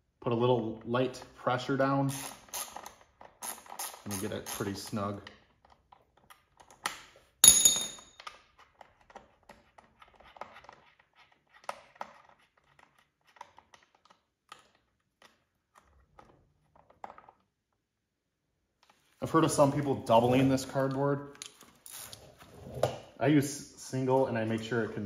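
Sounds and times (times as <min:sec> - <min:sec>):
ringing metal clink: 0:07.4 - 0:08.2.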